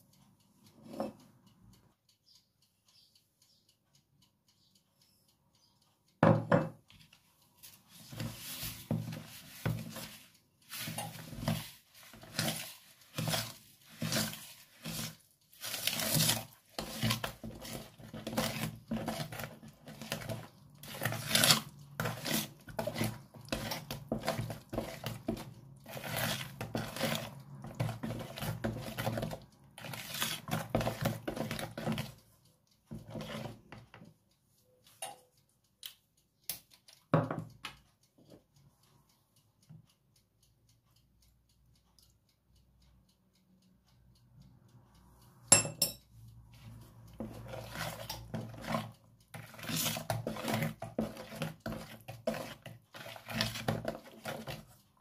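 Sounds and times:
spoon knocking plastic bowl: 0:06.2 - 0:06.8
wooden spoon stirring thick mixture: 0:06.9 - 0:34.2, 0:46.6 - 0:55.0.

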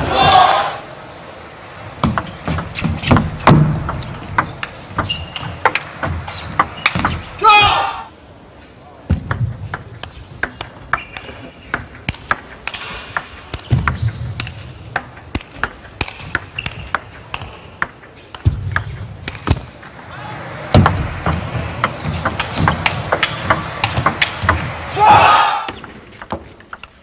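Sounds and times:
crowd noise: 0:00.0 - 0:26.2
table tennis ball clicking: 0:09.2 - 0:19.8, 0:25.7 - 0:27.0.

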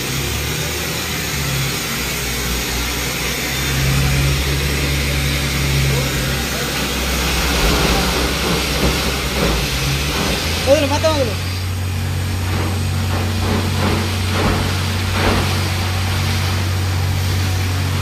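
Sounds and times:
air blowing water spray: 0:00.0 - 0:18.0
engine and compressor hum: 0:00.0 - 0:18.0
hissing rush: 0:00.0 - 0:18.0.

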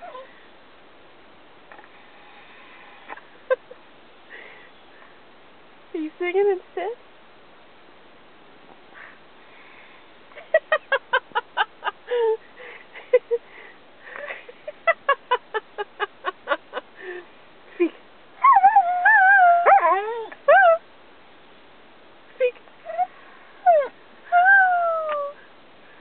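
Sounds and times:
dog whining howl: 0:18.4 - 0:20.8
dog yipping: 0:19.6 - 0:20.8.

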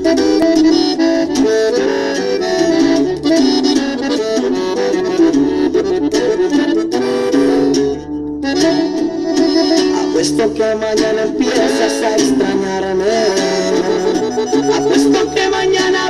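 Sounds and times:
accordion melody: 0:00.0 - 0:16.0
bass line and rhythm: 0:00.0 - 0:16.0.

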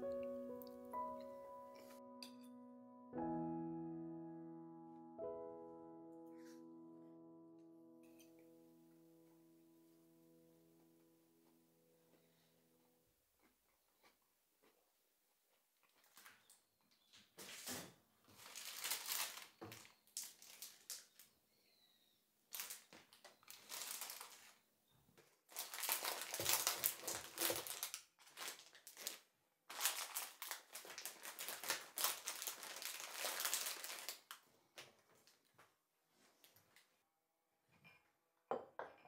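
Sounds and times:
plastic packets crinkling: 0:16.0 - 0:16.5, 0:18.3 - 0:21.3, 0:22.5 - 0:24.6, 0:25.2 - 0:35.5.

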